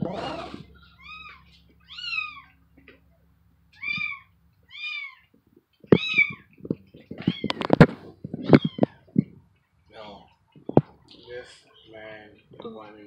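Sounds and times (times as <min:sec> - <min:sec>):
cat meowing: 0:00.0 - 0:02.6, 0:03.7 - 0:05.3, 0:05.9 - 0:06.5, 0:07.1 - 0:09.2
knocks and thumps: 0:05.8 - 0:09.5, 0:10.6 - 0:11.0.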